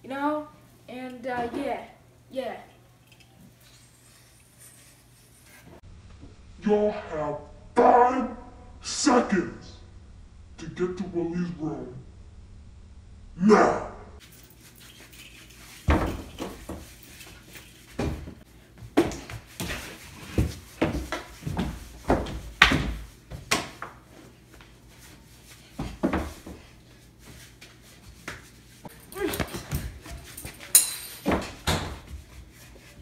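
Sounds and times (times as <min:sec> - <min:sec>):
running footsteps on wooden floor: 0:15.9 - 0:24.0, 0:31.3 - 0:33.0.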